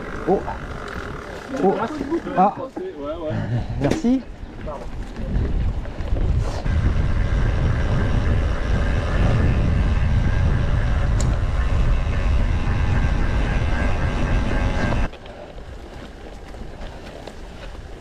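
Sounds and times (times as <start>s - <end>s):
bike tyre rumble on trail: 0.0s - 3.4s, 4.1s - 18.0s
wind rushing over microphone: 3.6s - 15.1s.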